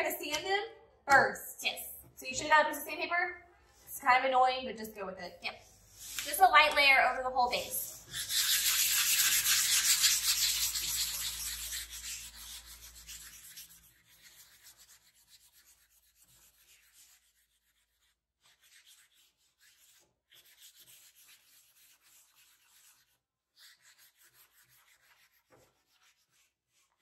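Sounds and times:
sandpaper rasping on wood: 5.6 - 6.5, 7.4 - 27.0.

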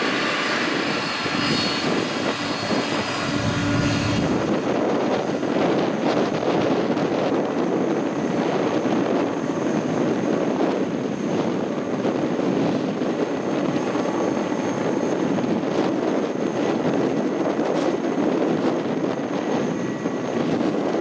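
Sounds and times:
jet engines rumbling with whine: 0.0 - 21.0.

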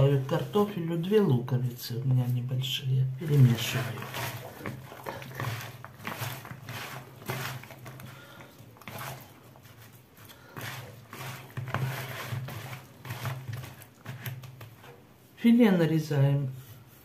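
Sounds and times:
wet potato slices tossed in bowl: 3.2 - 15.0.

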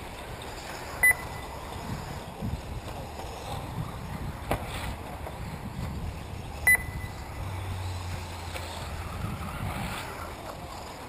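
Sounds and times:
rc cars rushing with hum: 0.0 - 11.0
wind on microphone: 1.1 - 10.9
loud electronic beep: 6.7 - 7.2.

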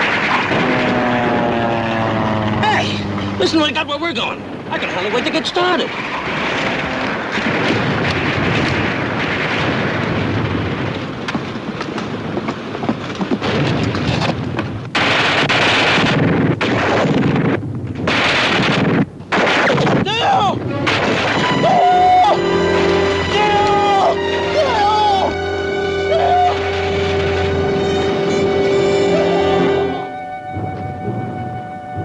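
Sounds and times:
gunfire: 0.0 - 1.8, 6.0 - 11.2, 14.9 - 20.1, 20.8 - 21.7
explosions: 0.0 - 3.8, 5.8 - 12.4, 13.4 - 21.9.

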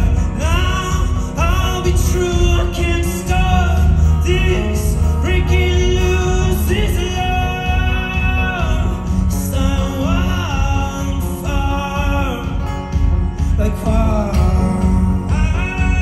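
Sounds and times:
acoustic-electric guitar: 0.0 - 16.0
heavy low bass: 0.0 - 16.0
man singing: 0.0 - 16.0.

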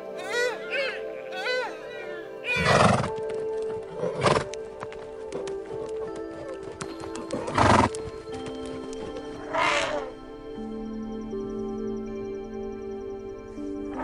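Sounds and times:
horses calling: 0.0 - 10.2
background music with held tones: 0.0 - 14.0.

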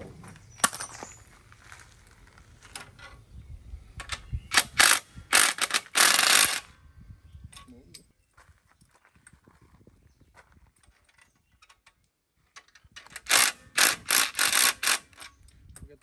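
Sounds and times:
cordless drill driving bolt: 4.0 - 6.7, 13.0 - 15.2.

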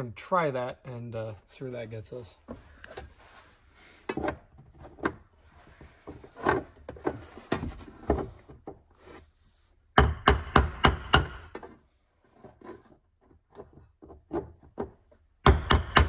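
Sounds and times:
hammer striking metal punch: 10.0 - 11.5, 15.4 - 16.0.

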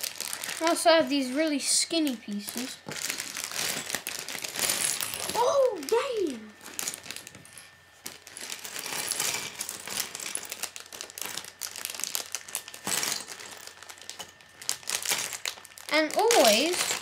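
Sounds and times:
plastic bag crinkling: 0.0 - 17.0
plastic pieces clattering on wood: 2.0 - 5.5, 8.0 - 17.0.

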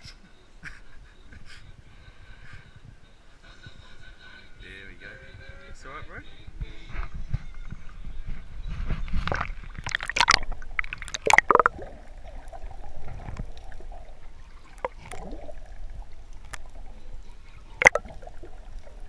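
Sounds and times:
muffled underwater wash: 8.4 - 19.0
water splashing and gurgling: 9.2 - 19.0.

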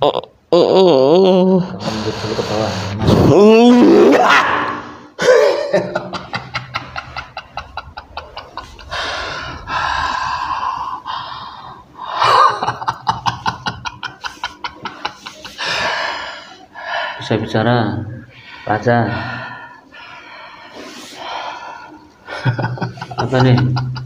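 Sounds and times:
man crying out: 3.1 - 5.8
man laughing breathily: 5.2 - 11.2, 12.0 - 16.3, 22.2 - 24.0.

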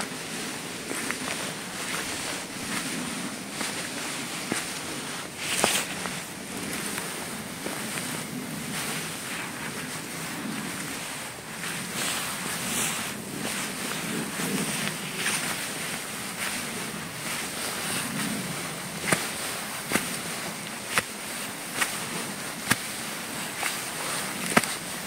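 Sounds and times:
footsteps crunching dry leaves: 0.0 - 25.0
steady rustling noise: 0.0 - 25.0.

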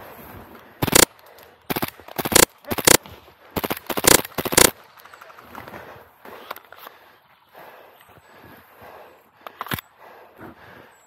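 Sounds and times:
airsoft gun firing bursts: 0.8 - 5.0.

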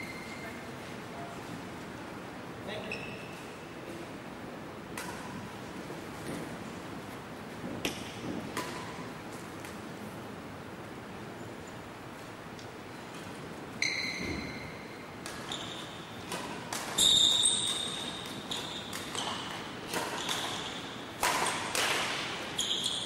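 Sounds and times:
badminton racket hitting shuttlecock: 15.2 - 23.0.

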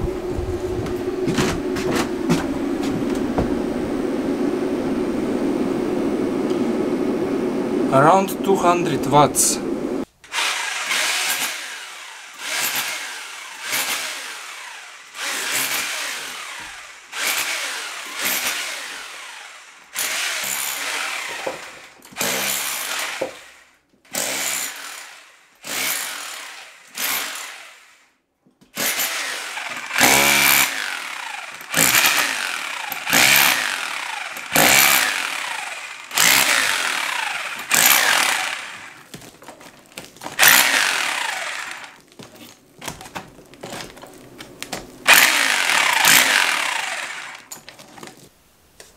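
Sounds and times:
hand saw cutting wood: 10.3 - 28.1, 28.7 - 42.3, 45.0 - 47.7.

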